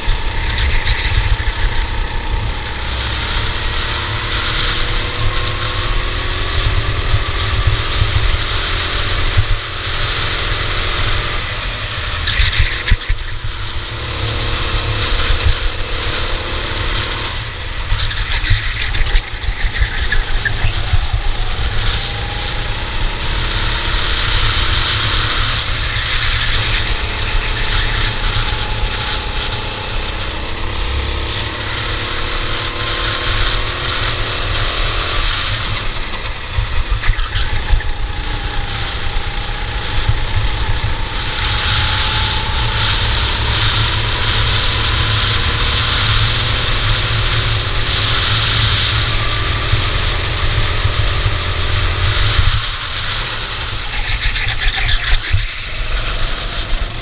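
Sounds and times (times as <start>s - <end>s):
rumbling wind noise: 0.0s - 31.2s
kart engine running hard: 0.0s - 57.0s.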